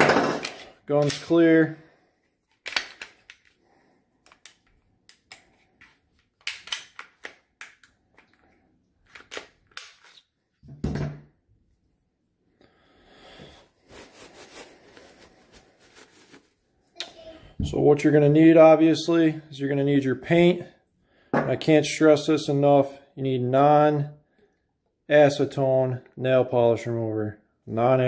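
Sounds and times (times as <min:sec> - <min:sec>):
metallic clicks of pistol handling: 0:02.6 - 0:03.5, 0:06.4 - 0:08.0
paper towel wiping: 0:13.8 - 0:16.6.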